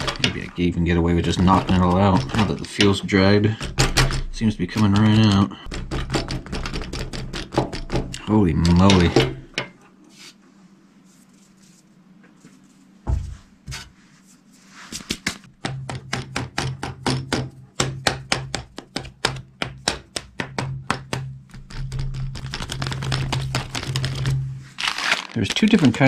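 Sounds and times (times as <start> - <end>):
rapid clicking and crackling: 21.5 - 26.0.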